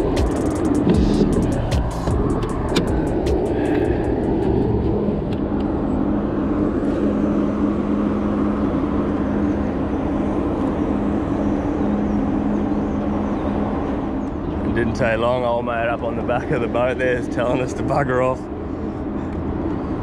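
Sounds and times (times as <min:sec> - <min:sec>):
boat motor hum: 0:00.0 - 0:20.0
dense rushing noise: 0:00.0 - 0:20.0.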